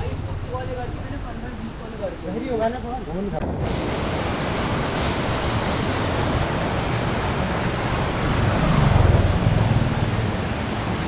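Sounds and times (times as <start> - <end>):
wind rushing on microphone: 3.4 - 11.0.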